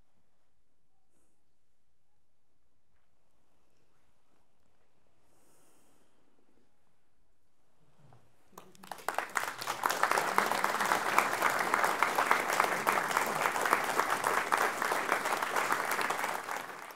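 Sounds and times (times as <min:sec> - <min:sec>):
audience applauding: 0:08.6 - 0:16.9.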